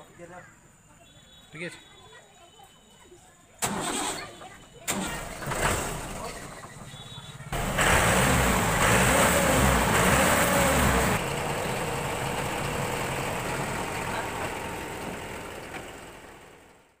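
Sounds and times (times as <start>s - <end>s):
tractor diesel engine running: 3.6s - 4.2s, 4.8s - 17.0s.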